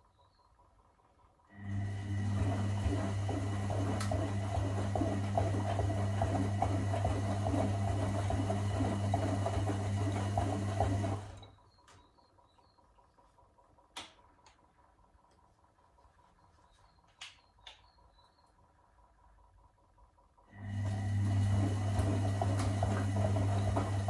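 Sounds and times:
washing machine motor humming: 0:00.8 - 0:12.5, 0:18.6 - 0:24.0.

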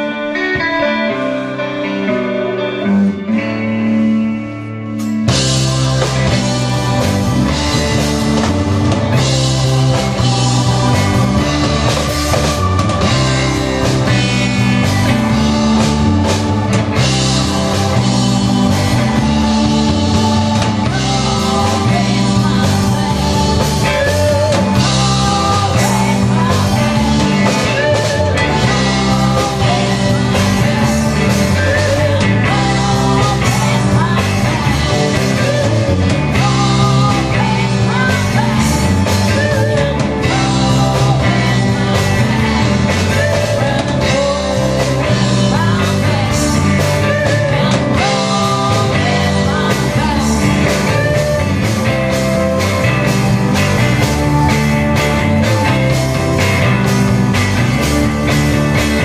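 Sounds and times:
bass guitar: 0:00.0 - 0:59.0
drum kit: 0:00.0 - 0:59.0
electric guitars: 0:00.0 - 0:59.0
keyboards: 0:00.0 - 0:59.0
woman singing into microphone: 0:15.8 - 0:51.7.

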